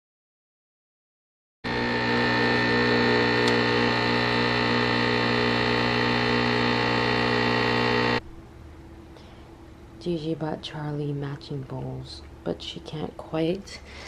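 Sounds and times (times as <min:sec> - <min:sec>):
espresso machine pump buzzing: 0:01.7 - 0:08.2.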